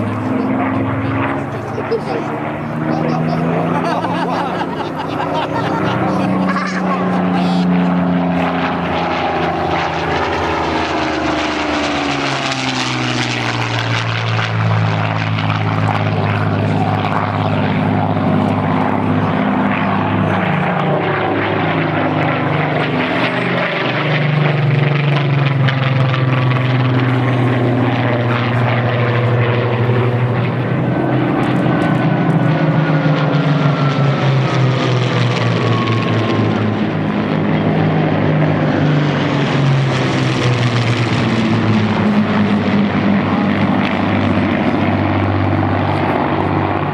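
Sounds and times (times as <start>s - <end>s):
propeller aircraft engines droning: 0.0s - 46.9s.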